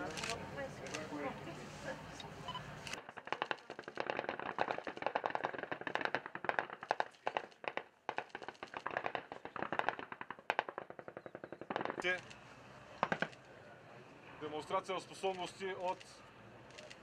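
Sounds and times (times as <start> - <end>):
automatic machine-gun fire: 3.0 - 12.2, 13.0 - 13.4.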